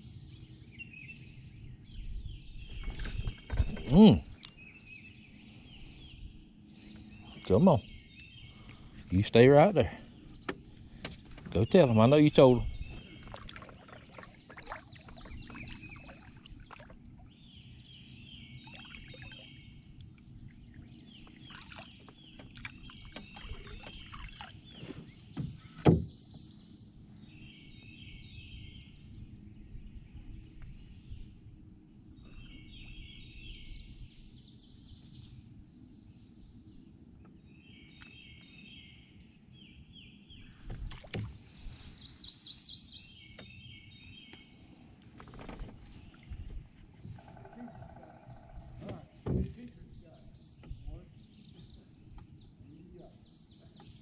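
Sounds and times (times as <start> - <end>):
songbirds singing: 0.0 - 54.0
knocks: 25.4 - 26.1.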